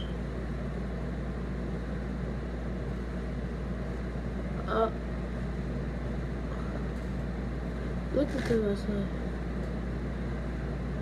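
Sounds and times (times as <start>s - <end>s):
electric fan humming: 0.0s - 11.0s.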